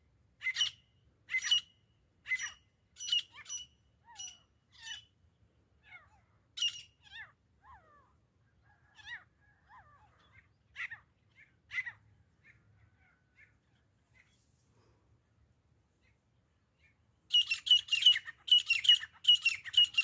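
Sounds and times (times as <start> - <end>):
francolins calling harshly: 0.4 - 5.1, 5.9 - 7.3, 17.3 - 20.0.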